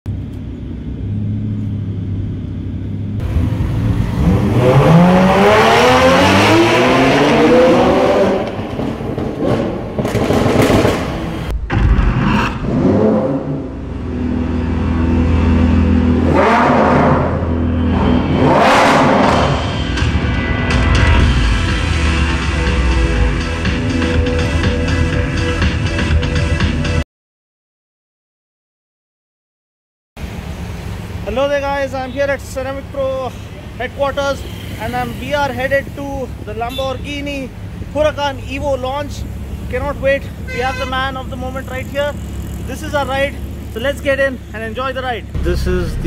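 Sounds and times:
car engine revving: 0.7s - 24.8s, 37.4s - 46.0s
background music with bass: 11.4s - 27.0s, 36.4s - 46.0s.

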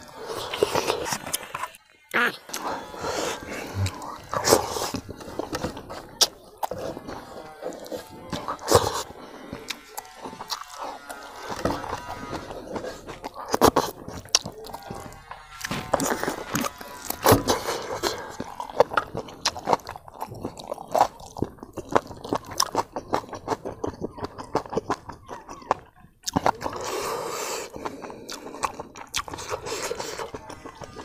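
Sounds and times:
wet chewing and crunching: 0.0s - 31.0s.

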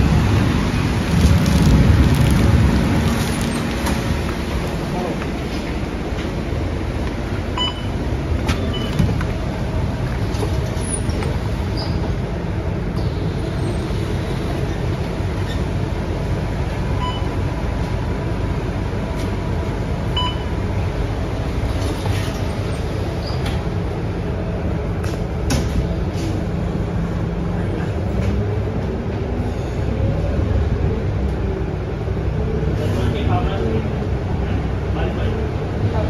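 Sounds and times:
bus engine rumbling: 0.0s - 36.0s
short beeps: 7.6s - 8.0s, 17.0s - 17.3s.

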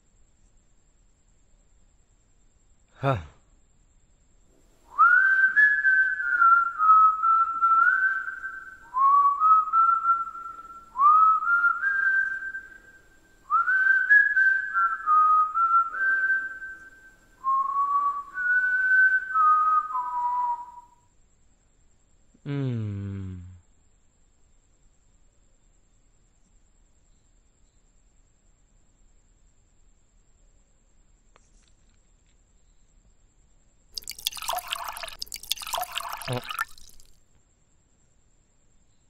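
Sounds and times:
person whistling a tune: 4.9s - 21.0s, 34.0s - 37.0s.

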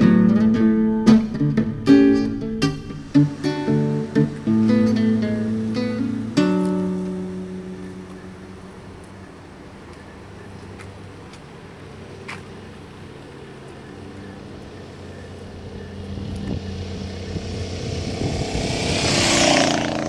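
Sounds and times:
rushing noise: 1.2s - 6.4s, 15.2s - 20.0s
car engine idling: 11.8s - 20.0s.

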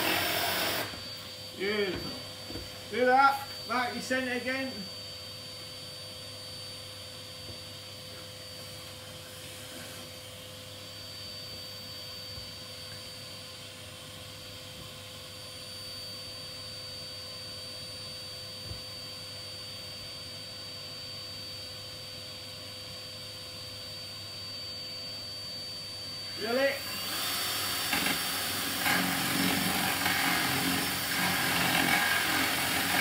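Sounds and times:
cordless drill whirring: 0.0s - 1.3s, 26.8s - 33.0s.

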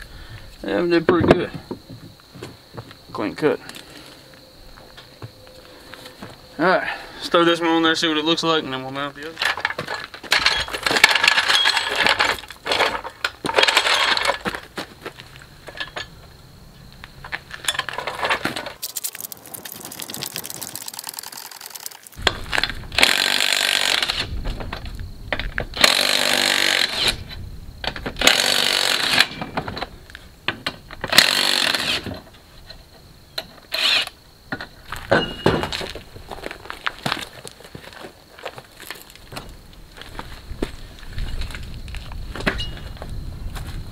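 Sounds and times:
jack clicks and rattles: 9.4s - 14.7s.

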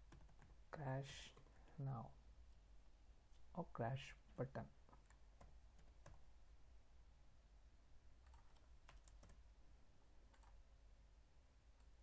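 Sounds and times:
computer keyboard keystrokes: 0.0s - 0.6s, 8.2s - 9.4s, 10.3s - 10.6s.

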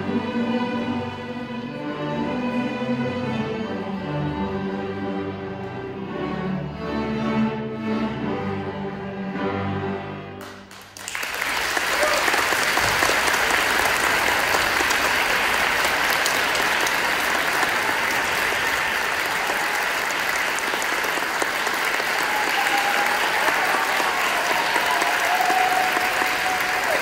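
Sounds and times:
audience applause: 10.4s - 27.0s.

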